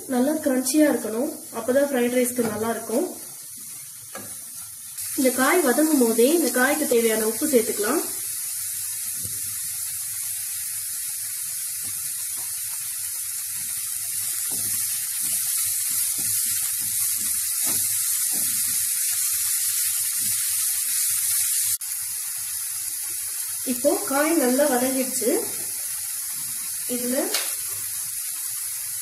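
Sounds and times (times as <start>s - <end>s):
vegetables sizzling in oil: 0.0s - 29.0s
spatula scraping pan: 14.4s - 19.1s.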